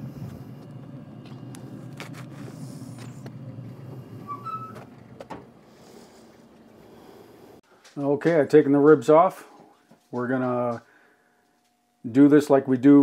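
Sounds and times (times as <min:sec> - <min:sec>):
low rumble: 0:00.0 - 0:07.6
hinge squeaking: 0:04.1 - 0:05.6.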